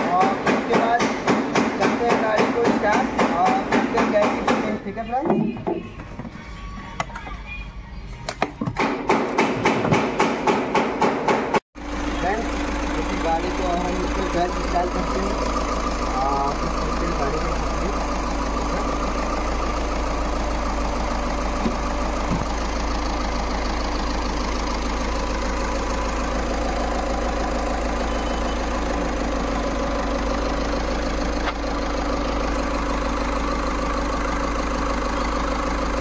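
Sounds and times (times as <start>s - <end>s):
car engine idling: 0.0s - 36.0s.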